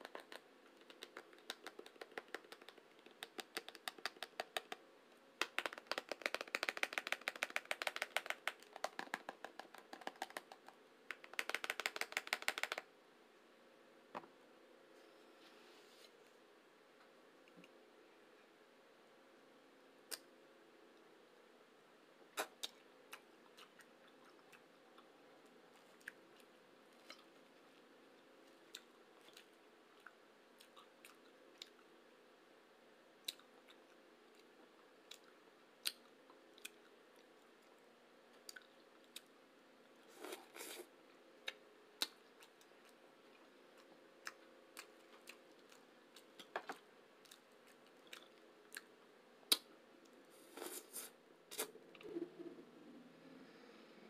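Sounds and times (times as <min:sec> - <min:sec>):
faint steady hum: 0:00.0 - 0:54.0
soft chewing: 0:22.3 - 0:32.0, 0:33.2 - 0:39.4, 0:40.0 - 0:53.0.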